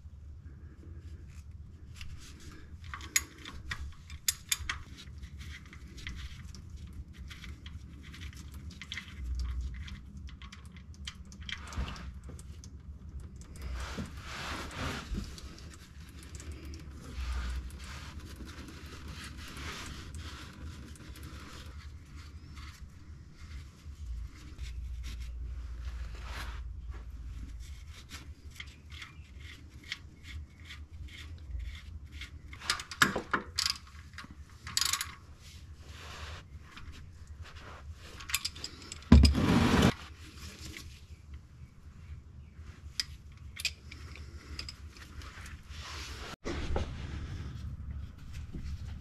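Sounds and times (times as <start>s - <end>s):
metal tools clinking and scraping: 38.2s - 39.4s.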